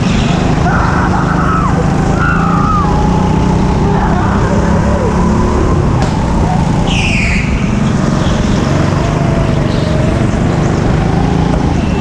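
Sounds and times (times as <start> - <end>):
go-kart engines racing: 0.0 - 12.0
high squeal: 6.3 - 7.7.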